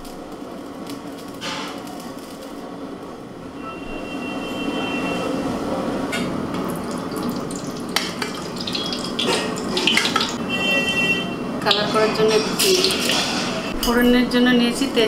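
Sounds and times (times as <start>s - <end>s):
oil trickling onto metal: 6.7s - 10.4s.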